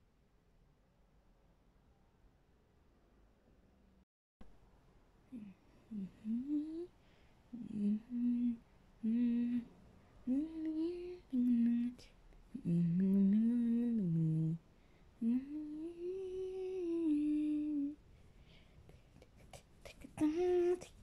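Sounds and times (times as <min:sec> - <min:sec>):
person humming a slow tune: 0:05.3 - 0:09.7, 0:10.3 - 0:14.6, 0:15.2 - 0:18.0, 0:19.9 - 0:21.0.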